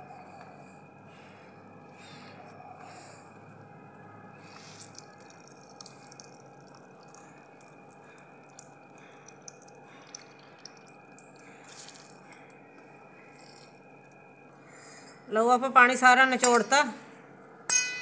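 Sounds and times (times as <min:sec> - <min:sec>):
vegetables squeezed by hand: 0:04.4 - 0:06.4, 0:09.8 - 0:12.5
water dripping onto steel plate: 0:04.5 - 0:12.6.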